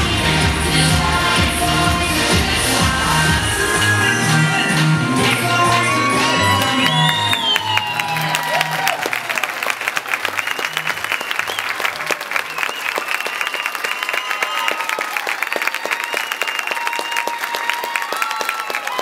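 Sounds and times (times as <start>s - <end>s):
dance music: 0.0s - 9.4s
crowd applauding: 4.8s - 19.0s
calls and whistles: 6.6s - 8.1s, 10.3s - 14.4s.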